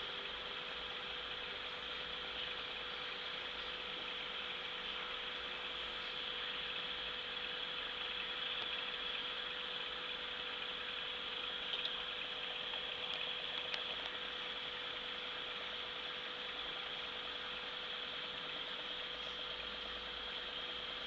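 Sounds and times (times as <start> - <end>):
aquarium pump humming: 0.0 - 21.0
faint ticks: 8.2 - 9.3, 11.6 - 14.3.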